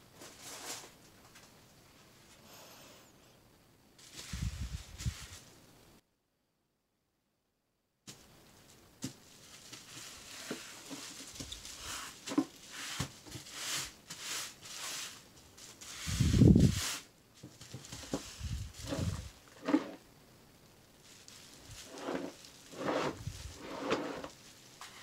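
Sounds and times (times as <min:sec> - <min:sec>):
plastic packaging crinkling: 0:09.2 - 0:13.5, 0:21.0 - 0:25.0.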